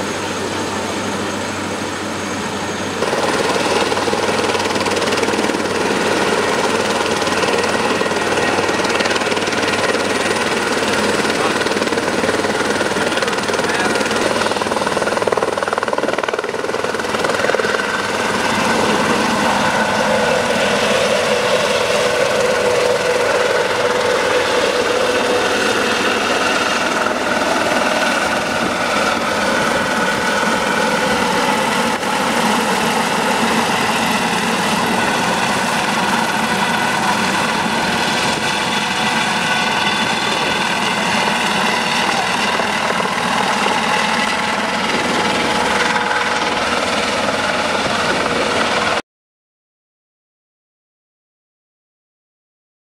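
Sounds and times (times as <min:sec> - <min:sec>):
helicopter rotor noise: 0:00.0 - 0:49.0
turbine whine: 0:00.0 - 0:49.0.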